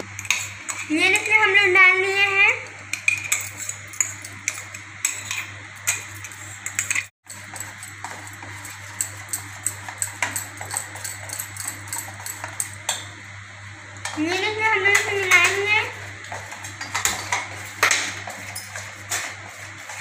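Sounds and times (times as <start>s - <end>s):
steel clinking in a bowl: 2.9s - 13.1s.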